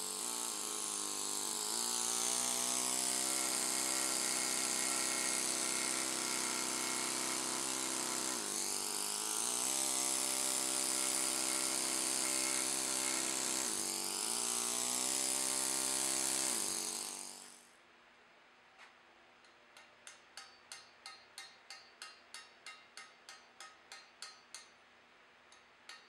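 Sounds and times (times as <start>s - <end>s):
pneumatic hammer chiseling stone: 0.0s - 17.6s, 19.8s - 24.8s, 25.6s - 26.0s.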